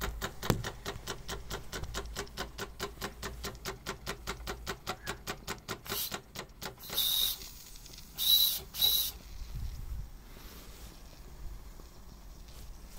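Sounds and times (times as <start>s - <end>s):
toy steam engine ticking over: 0.0s - 9.3s
shrill steam whistle blasts: 6.8s - 7.4s, 8.2s - 9.2s.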